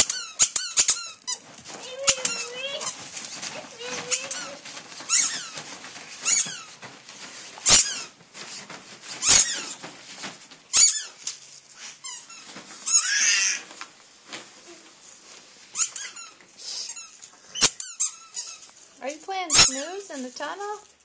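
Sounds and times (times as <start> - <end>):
dog whining with high squeals: 3.9 - 5.6, 6.2 - 6.8, 9.2 - 9.8, 10.7 - 11.2, 12.1 - 13.7, 15.8 - 18.6.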